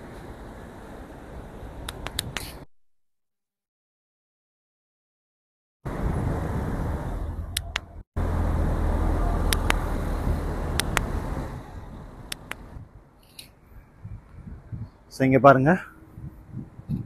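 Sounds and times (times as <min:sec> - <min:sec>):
sharp clicks: 0:01.9 - 0:02.6, 0:07.5 - 0:07.9, 0:09.5 - 0:09.9, 0:10.7 - 0:11.1, 0:12.3 - 0:13.5
wind buffeting microphone: 0:05.9 - 0:17.0.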